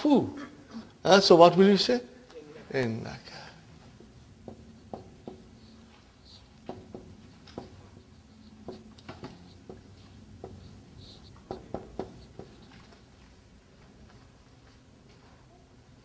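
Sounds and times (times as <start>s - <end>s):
marker tapping on whiteboard: 4.0s - 13.0s
marker squeaking: 4.4s - 13.1s.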